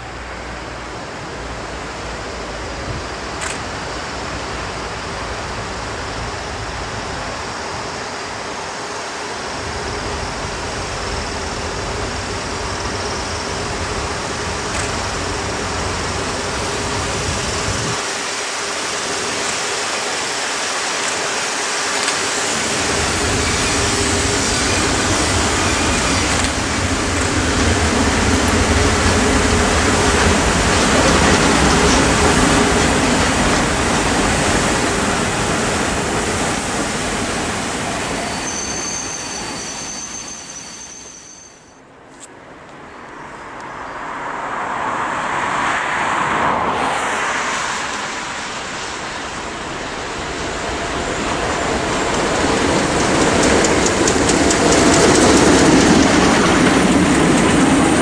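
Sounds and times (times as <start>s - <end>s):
train wheels rumbling on rail: 0.0s - 41.5s, 43.6s - 58.0s
thin wheel squeal: 38.1s - 41.8s.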